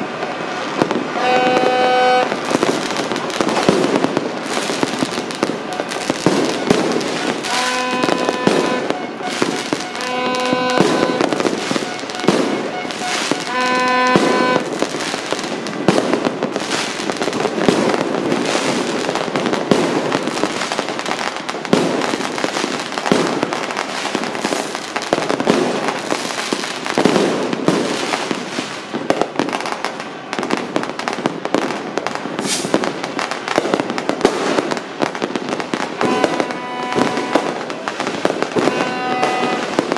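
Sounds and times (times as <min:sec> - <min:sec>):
fireworks bangs and crackling: 0:00.0 - 0:39.9
horn blowing: 0:01.1 - 0:02.7, 0:05.7 - 0:15.2, 0:35.9 - 0:39.9.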